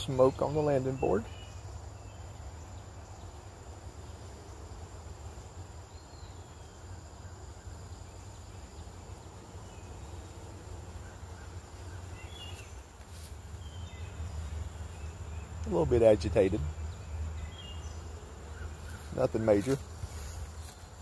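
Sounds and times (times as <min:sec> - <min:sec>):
bees buzzing: 0:00.0 - 0:21.0.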